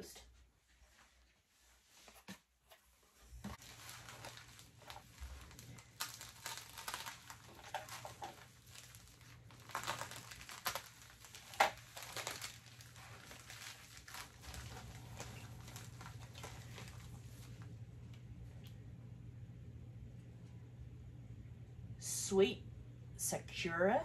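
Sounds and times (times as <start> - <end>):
packaging crinkling and rustling: 3.3 - 17.7.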